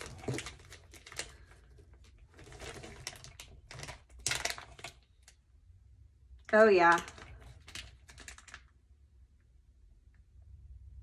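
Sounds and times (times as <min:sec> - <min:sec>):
plastic bag crinkling: 0:00.0 - 0:05.4, 0:06.5 - 0:08.8.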